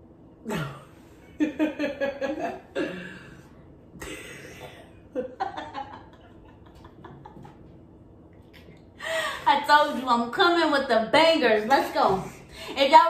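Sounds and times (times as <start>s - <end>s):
women laughing: 1.4s - 2.8s, 4.0s - 7.7s.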